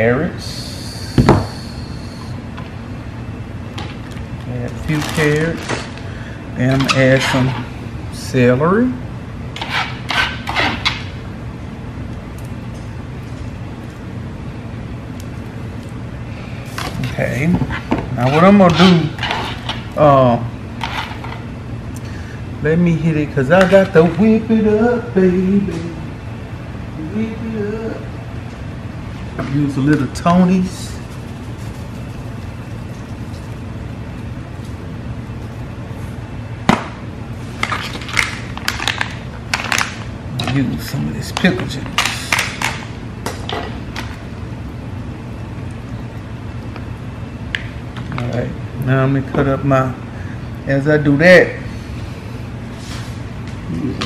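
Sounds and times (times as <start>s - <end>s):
low background hum: 0.0s - 54.0s
plastic bag crinkling: 4.7s - 6.0s
scraping on plastic cutting board: 9.6s - 11.1s, 16.8s - 19.8s.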